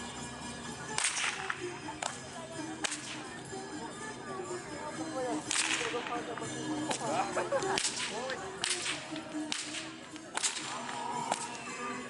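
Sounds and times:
bullwhip cracks: 1.0s - 2.2s, 2.8s - 3.2s, 5.4s - 6.2s, 7.7s - 11.7s.

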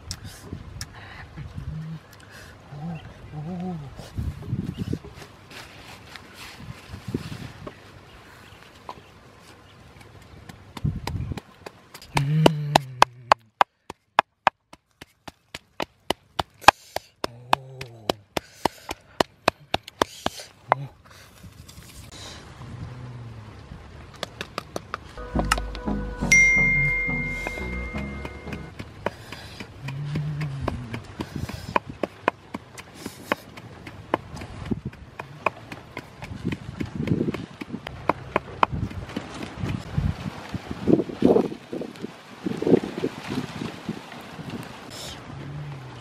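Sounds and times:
pestle pounding in a mortar: 27.5s - 39.8s.

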